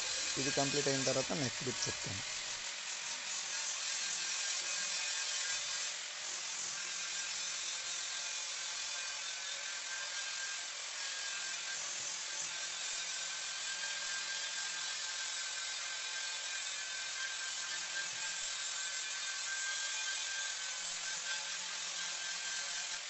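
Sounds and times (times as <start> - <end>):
angle grinder whine: 0.0 - 2.5
grinding stone hissing on stone: 0.0 - 23.0.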